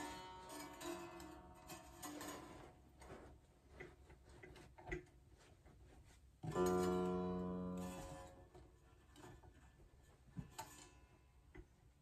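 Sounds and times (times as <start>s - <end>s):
plucked guitar string notes: 6.4s - 9.1s.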